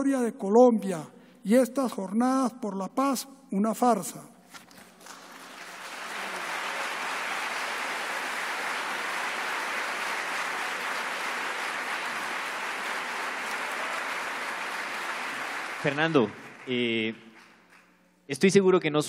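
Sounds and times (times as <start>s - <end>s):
audience applauding: 4.9s - 18.0s.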